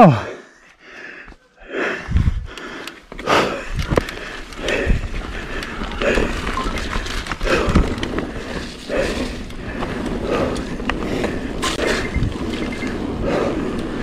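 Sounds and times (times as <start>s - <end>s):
bike knocking and rattling: 3.0s - 14.0s
bike tyres rushing over dirt: 3.0s - 14.0s.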